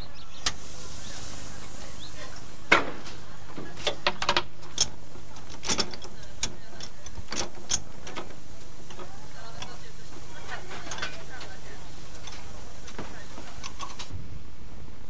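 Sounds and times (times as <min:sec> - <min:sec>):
steady low hum: 0:00.0 - 0:15.0
metallic clanks of train coupling: 0:02.2 - 0:14.2.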